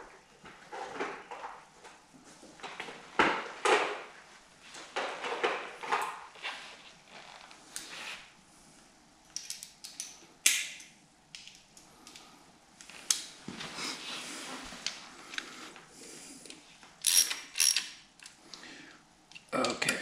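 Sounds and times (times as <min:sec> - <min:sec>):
tools clinking and knocking: 0:09.3 - 0:11.6, 0:17.0 - 0:18.0
socket ratchet clicking: 0:17.0 - 0:18.0.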